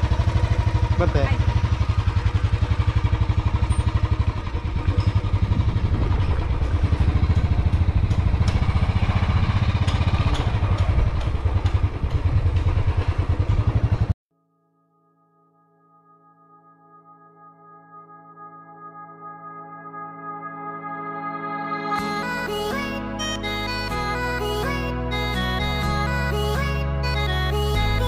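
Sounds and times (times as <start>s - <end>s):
motorcycle engine throbbing: 0.0s - 14.2s.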